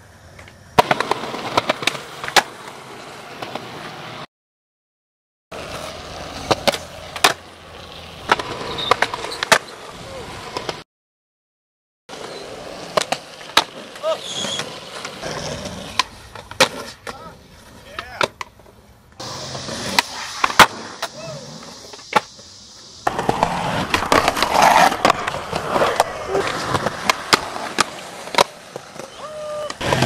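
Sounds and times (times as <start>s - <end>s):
skateboards rolling on concrete: 0.0s - 4.3s, 5.5s - 10.8s, 12.1s - 30.0s
skateboard clacks: 0.3s - 4.2s, 5.6s - 10.8s, 12.1s - 22.4s, 23.0s - 30.0s
board grinding on concrete ledge: 23.0s - 29.0s, 29.8s - 30.0s.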